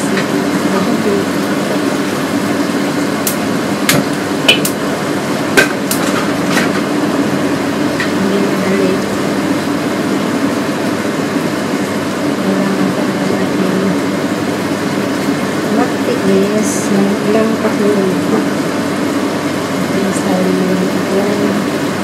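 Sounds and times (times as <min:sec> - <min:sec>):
kitchen hum: 0:00.0 - 0:22.0.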